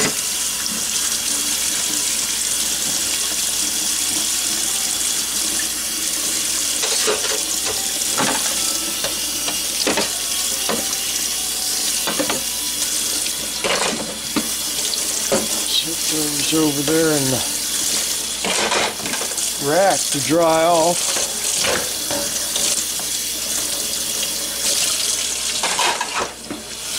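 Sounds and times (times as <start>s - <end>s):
faucet running into steel sink: 0.0s - 26.9s
dishes knocking and clinking: 12.0s - 12.4s.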